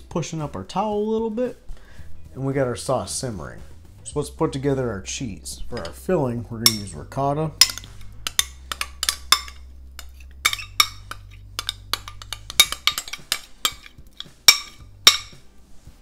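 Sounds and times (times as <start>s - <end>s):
utensil clinking on glass bowl: 5.7s - 7.0s, 7.6s - 15.4s.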